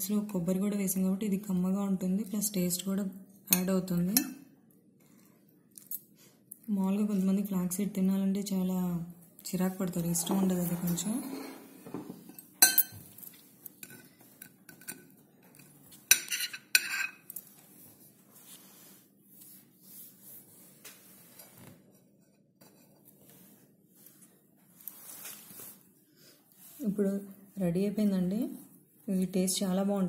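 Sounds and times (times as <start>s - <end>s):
crockery clinking: 10.1s - 15.2s.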